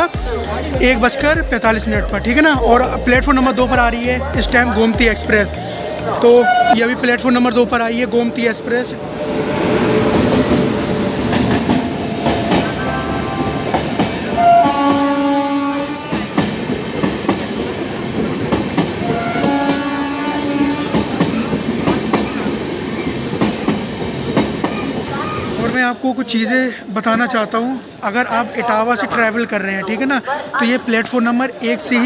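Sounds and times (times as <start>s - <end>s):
train wheels clacking: 9.9s - 12.9s, 13.5s - 15.2s, 15.8s - 25.2s
train horn blasts: 14.4s - 16.2s, 19.1s - 21.0s.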